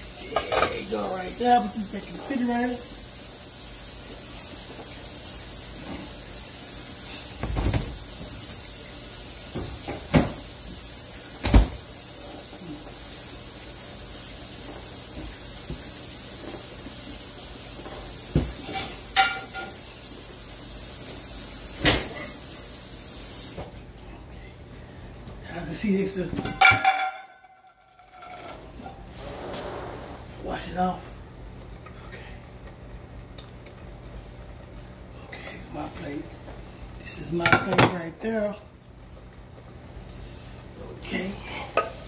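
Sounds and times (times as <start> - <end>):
steady hiss: 0.0 - 23.6
kitchen things knocking: 26.4 - 27.6.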